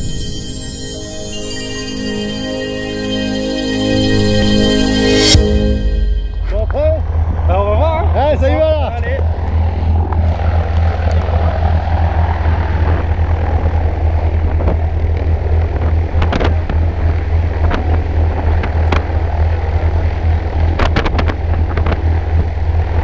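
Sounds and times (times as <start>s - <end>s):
propeller plane engine idling: 0.0s - 23.0s.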